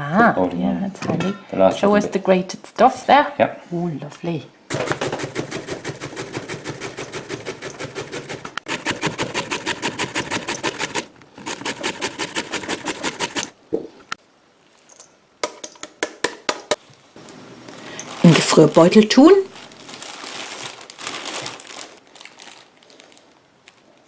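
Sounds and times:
grating on metal grater: 5.0 - 13.5.

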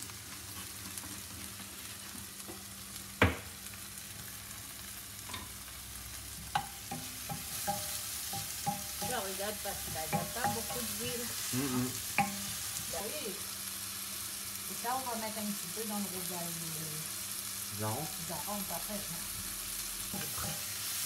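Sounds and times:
onions sizzling in a frying pan: 0.0 - 21.0
wooden spoon scraping a pan: 0.2 - 2.5, 20.1 - 21.0.

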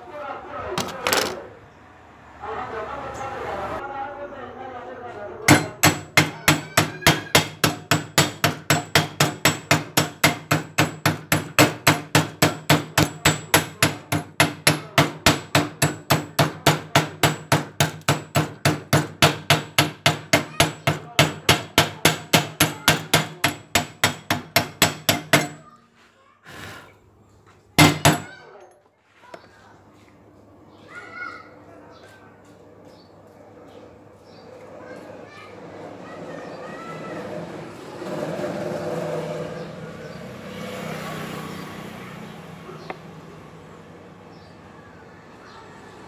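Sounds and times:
hammer striking metal: 5.5 - 25.7, 27.8 - 28.4.

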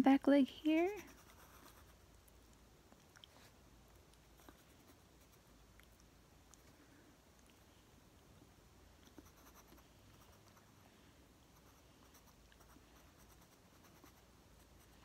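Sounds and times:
pencil scratching on paper: 0.8 - 2.0, 9.1 - 10.4, 11.6 - 15.0.

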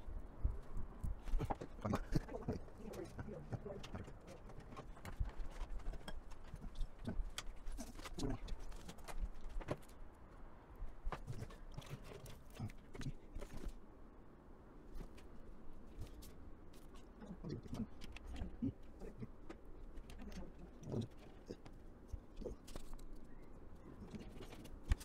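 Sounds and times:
cables clicking against metal case: 24.0 - 25.0.

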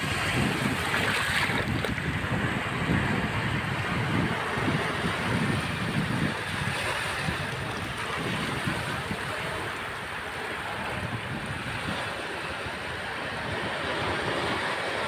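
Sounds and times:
small waves washing on sand: 0.0 - 15.0
wind buffeting microphone: 0.0 - 15.0.

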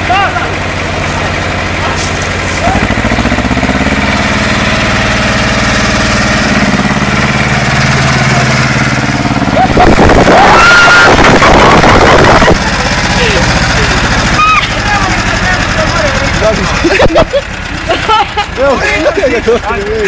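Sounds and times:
tractor engine under load: 0.0 - 20.0
voices shouting: 10.3 - 16.3.

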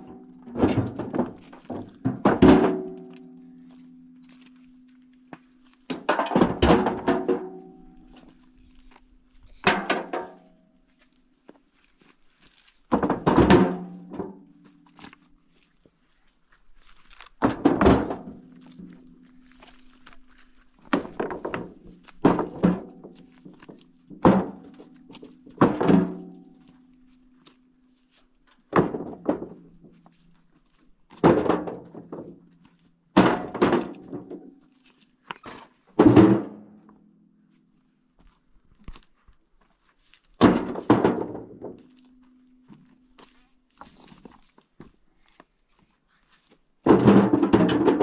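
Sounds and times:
heavy ringing thunks: 0.0 - 4.1
faint low hum: 2.8 - 5.9.

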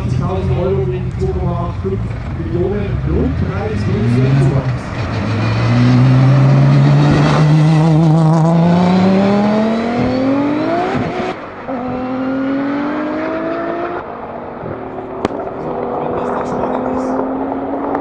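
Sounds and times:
cars accelerating hard: 0.0 - 18.0.

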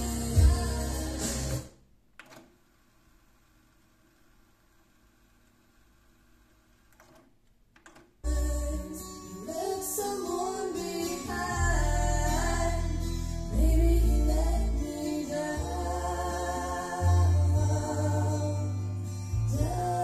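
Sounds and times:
loud music with singing: 0.0 - 1.7, 8.3 - 20.0.

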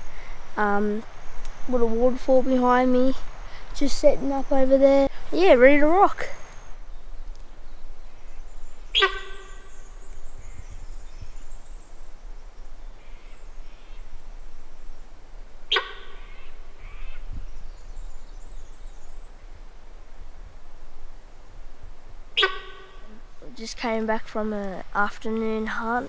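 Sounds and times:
faint birdsong: 0.0 - 26.0
deer honking alarm calls: 8.9 - 9.9, 15.7 - 17.2, 22.4 - 23.3.

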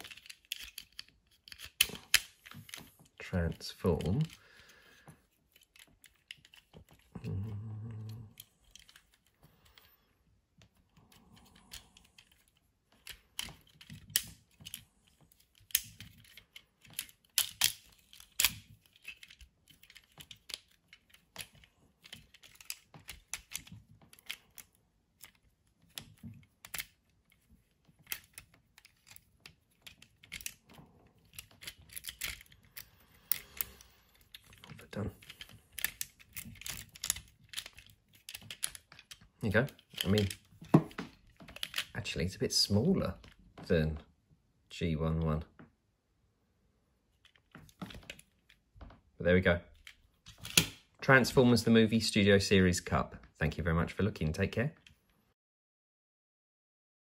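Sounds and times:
plastic toy parts clicking: 0.0 - 4.4, 5.2 - 9.8, 10.6 - 42.0, 49.7 - 50.9.

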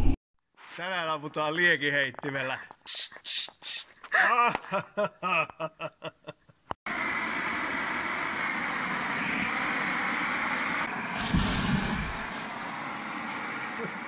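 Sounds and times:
man laughing: 4.1 - 6.6
steady hiss: 6.9 - 14.0
low thump: 11.2 - 12.2.

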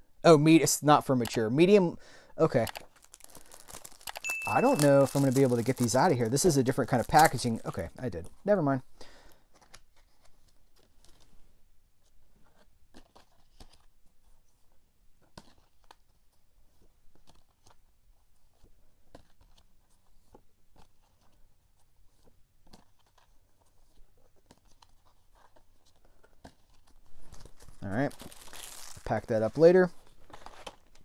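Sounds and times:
cards shuffling: 2.5 - 8.4, 9.4 - 11.3, 12.4 - 13.9, 18.5 - 31.0.

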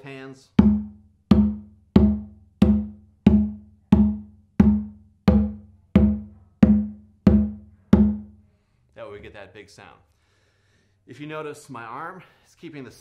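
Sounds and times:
hand drum open tones: 0.6 - 8.4.

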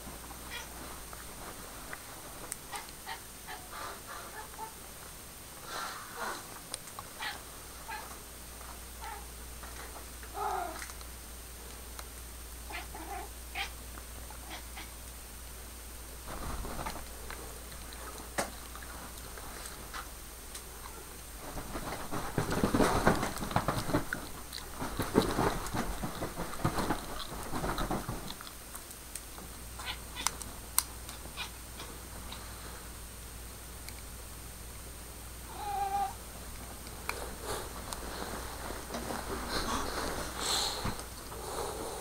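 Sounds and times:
fabric rustling: 21.4 - 28.3, 37.4 - 40.4.

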